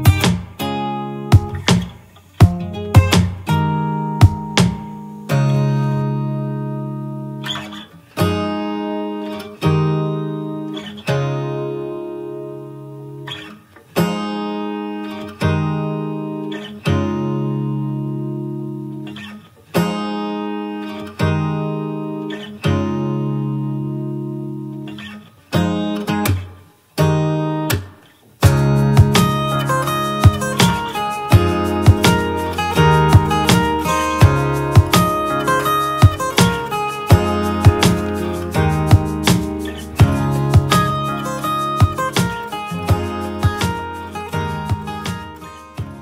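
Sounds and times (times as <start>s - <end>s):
strummed acoustic guitar chords: 0.0s - 46.0s.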